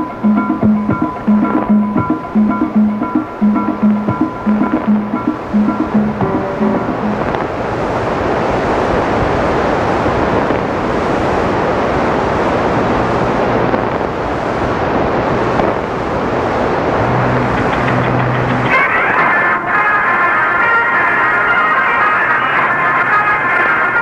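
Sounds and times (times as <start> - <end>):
faint low tones: 0.0 - 7.6, 16.9 - 19.4.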